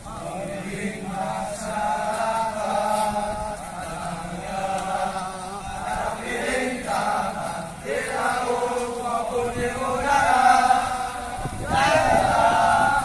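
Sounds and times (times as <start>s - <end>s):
men chanting in unison: 0.0s - 13.0s.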